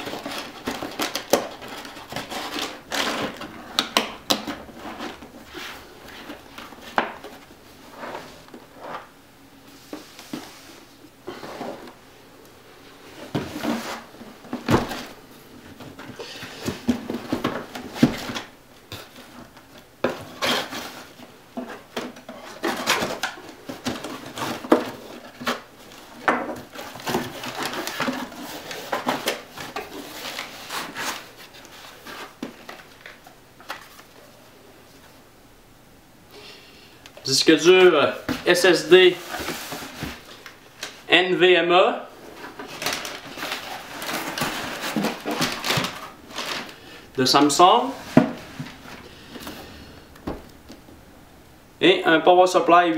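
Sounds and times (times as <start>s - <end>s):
cardboard and paper rustling: 0.0s - 9.1s, 13.1s - 34.2s, 38.1s - 41.0s, 42.3s - 50.4s.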